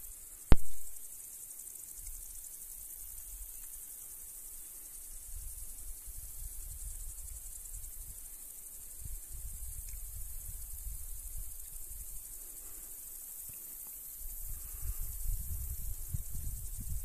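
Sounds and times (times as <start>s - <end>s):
insect chorus: 0.0s - 17.0s
wind rumble on microphone: 5.2s - 12.4s, 14.2s - 17.0s.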